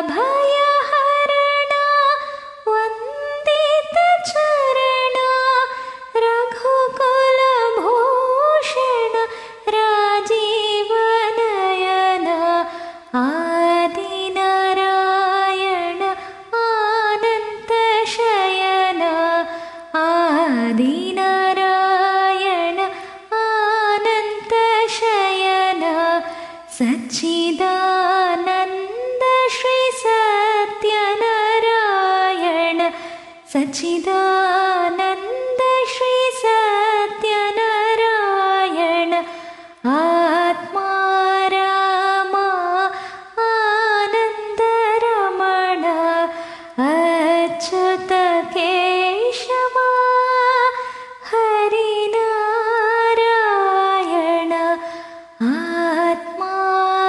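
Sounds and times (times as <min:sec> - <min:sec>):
woman singing devotional song: 0:00.0 - 0:57.0
short breaths: 0:05.7 - 0:06.1, 0:09.3 - 0:09.6, 0:12.7 - 0:13.1, 0:19.5 - 0:19.9, 0:22.9 - 0:23.3, 0:26.2 - 0:26.7, 0:32.9 - 0:33.4, 0:39.2 - 0:39.8, 0:42.9 - 0:43.4, 0:46.3 - 0:46.8, 0:50.8 - 0:51.2, 0:54.8 - 0:55.4.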